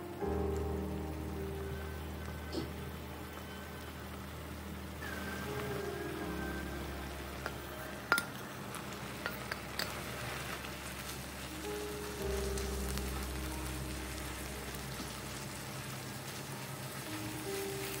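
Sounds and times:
soft background music: 0.0s - 18.0s
utensil clicking on pan: 7.4s - 8.4s, 9.2s - 10.4s.

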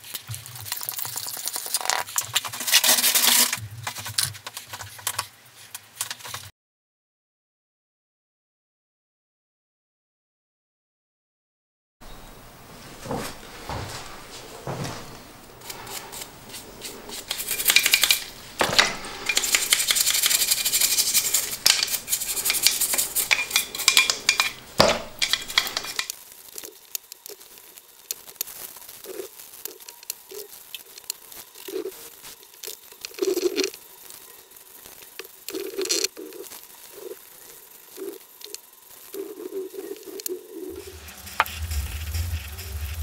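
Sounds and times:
harsh scrubbing and rattling: 2.3s - 3.6s, 15.5s - 26.1s, 40.7s - 43.0s
rag rubbing: 2.3s - 3.6s, 13.0s - 26.1s, 40.7s - 43.0s
metal parts knocking: 17.3s - 26.1s.

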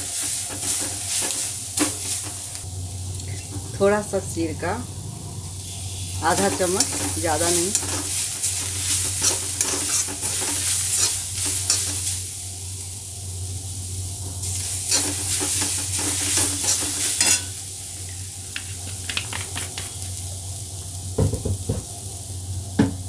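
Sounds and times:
vegetables sizzling in pan: 0.0s - 23.0s
metal spatula scraping pan: 6.2s - 12.0s, 14.9s - 17.5s.

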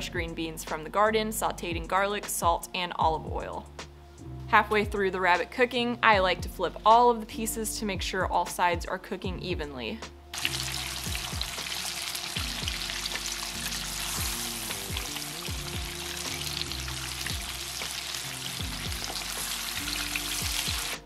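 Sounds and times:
soft background music: 0.0s - 21.0s
meat deep-frying in hot oil: 10.4s - 21.0s.

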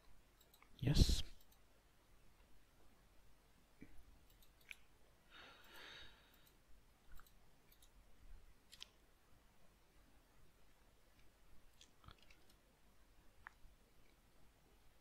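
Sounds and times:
soft hiss: 0.0s - 15.0s
faint computer mouse clicks: 4.2s - 4.9s, 5.6s - 8.0s.

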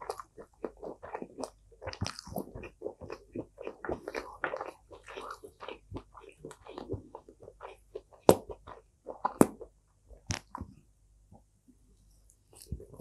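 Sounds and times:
chewing crispy fried food: 0.0s - 10.5s.

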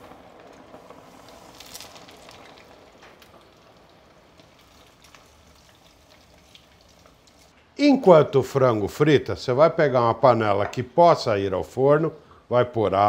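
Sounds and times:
chicken deep-frying in oil: 0.0s - 7.6s.

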